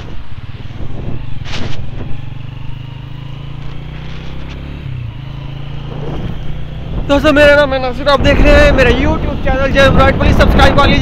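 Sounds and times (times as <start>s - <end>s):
tyre noise on wet road: 0.0s - 6.6s
motorcycle engine running: 0.0s - 11.0s.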